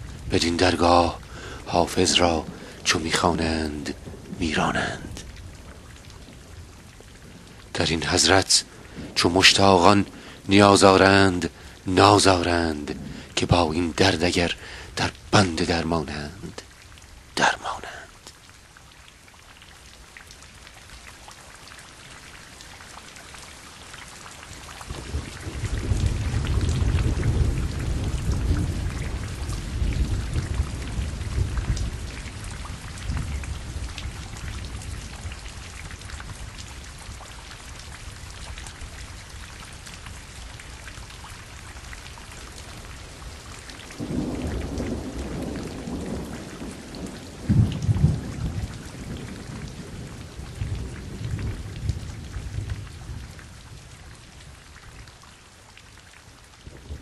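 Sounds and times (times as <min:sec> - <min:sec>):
steady rain: 0:00.0 - 0:57.0
rolling thunder: 0:24.8 - 0:37.2, 0:43.1 - 0:53.9
sharp thunderclap: 0:24.9 - 0:34.0, 0:44.0 - 0:52.9.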